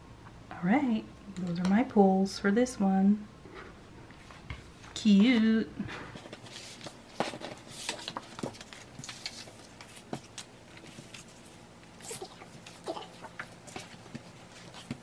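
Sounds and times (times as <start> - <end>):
paper rustling: 6.2 - 15.0.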